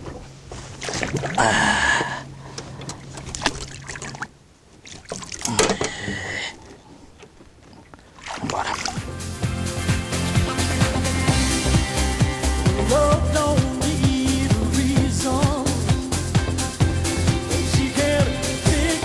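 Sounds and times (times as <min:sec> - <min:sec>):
water splashing: 0:00.0 - 0:06.3, 0:07.3 - 0:09.1
low steady hum: 0:00.0 - 0:09.0
music: 0:08.8 - 0:19.0.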